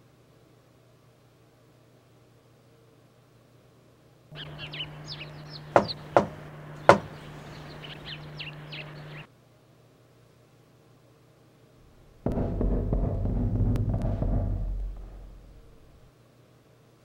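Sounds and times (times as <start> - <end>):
birds chirping: 4.3 - 9.3
knocking on a door: 5.6 - 7.2, 11.8 - 16.1.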